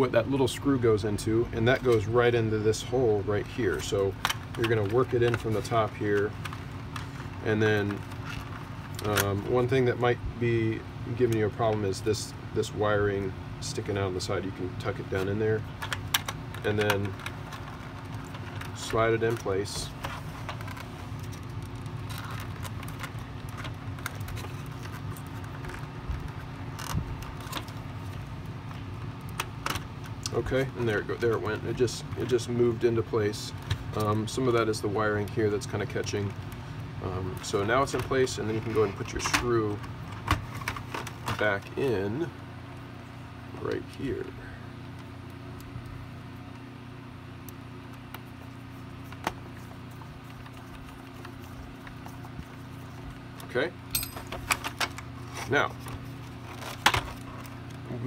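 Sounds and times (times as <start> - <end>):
steady low hum: 0.0 - 58.0
plastic parts clicking and scraping: 15.2 - 31.3, 54.3 - 57.9.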